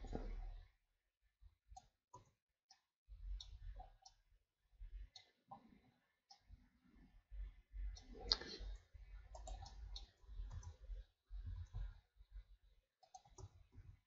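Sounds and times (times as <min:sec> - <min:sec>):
computer mouse clicking: 0:09.2 - 0:10.8, 0:11.4 - 0:12.0, 0:13.0 - 0:13.8.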